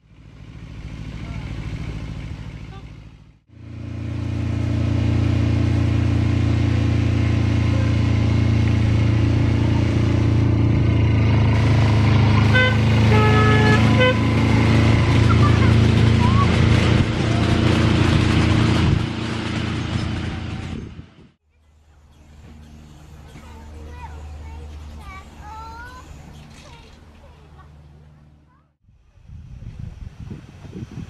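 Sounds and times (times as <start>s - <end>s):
locomotive engine droning: 0.0s - 31.0s
two-tone train horn: 11.6s - 14.9s.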